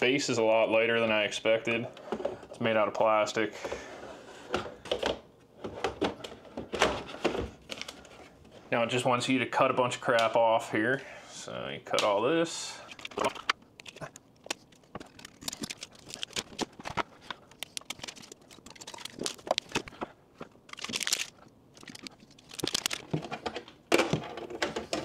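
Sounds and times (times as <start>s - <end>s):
plastic crinkling and tearing: 13.0s - 23.3s.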